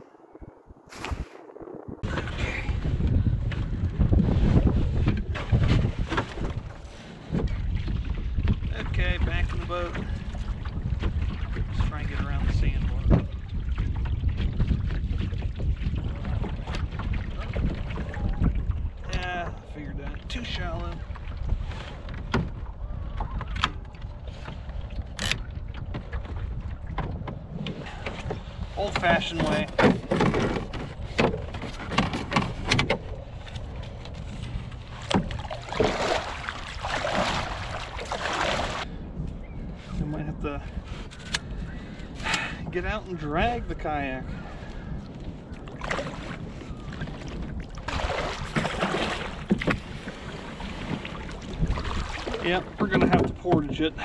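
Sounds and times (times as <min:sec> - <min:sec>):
paddle strokes in shallow water: 0:00.0 - 0:40.0, 0:40.7 - 0:54.0
wind rumbling on microphone: 0:00.0 - 0:54.0
water splashing: 0:05.3 - 0:38.9, 0:45.6 - 0:54.0.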